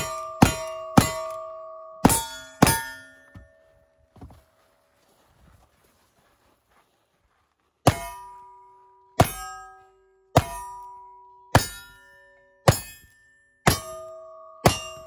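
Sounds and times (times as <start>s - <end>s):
steel target clanging: 0.0s - 3.7s, 7.9s - 15.0s.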